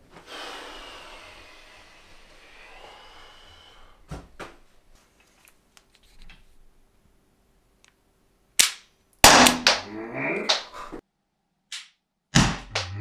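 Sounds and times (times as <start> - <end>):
person breathing: 0.2 - 4.1.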